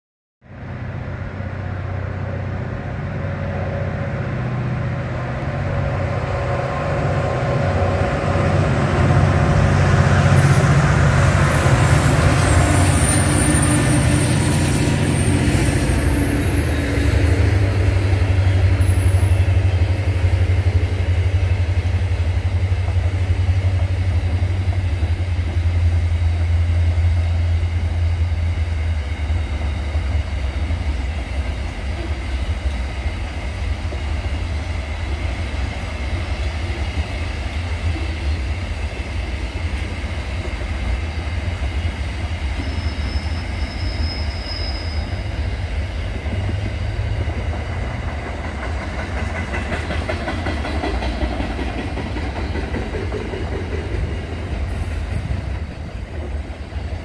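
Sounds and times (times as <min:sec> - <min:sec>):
diesel locomotive passing: 0:00.4 - 0:57.0
wagons rumbling over rails: 0:00.5 - 0:57.0
high-pitched wheel squealing: 0:11.5 - 0:17.5, 0:42.6 - 0:45.4.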